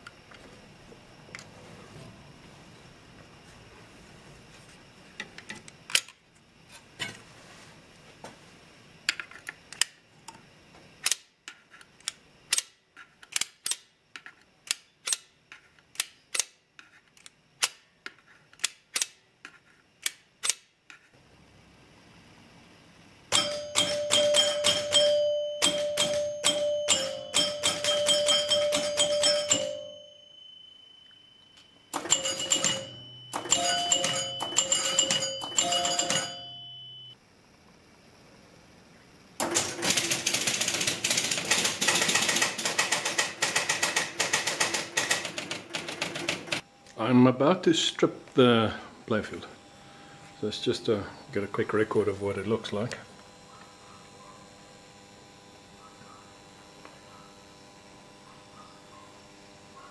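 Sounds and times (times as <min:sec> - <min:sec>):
score reel clicking: 0:23.3 - 0:30.0, 0:32.0 - 0:36.4
pinball chimes ringing: 0:23.3 - 0:37.2.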